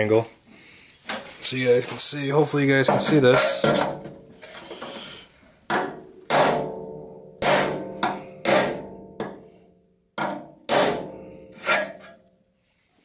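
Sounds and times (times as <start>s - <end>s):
hammer striking steel: 5.7s - 9.5s, 10.2s - 12.2s.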